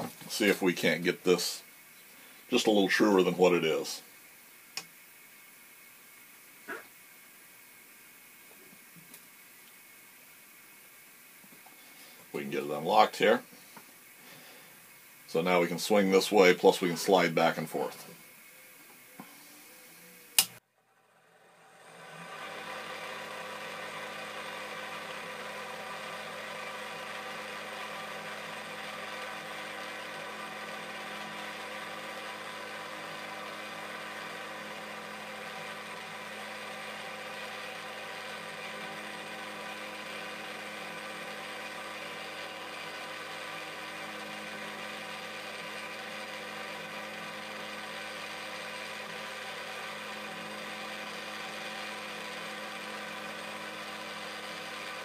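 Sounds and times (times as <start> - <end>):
grinder motor humming with high whine: 15.3 - 55.0.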